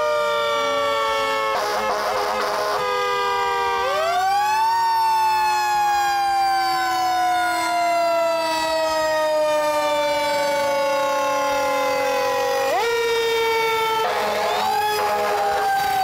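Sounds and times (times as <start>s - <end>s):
fire truck sirens wailing: 0.0s - 16.0s.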